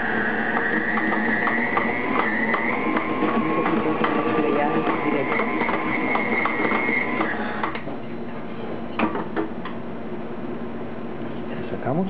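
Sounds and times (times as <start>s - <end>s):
stand mixer motor hum: 0.0s - 7.8s.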